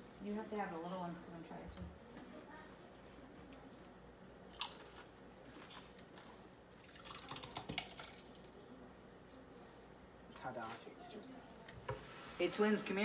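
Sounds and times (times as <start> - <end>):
tortilla chips crunching: 4.2 - 8.5.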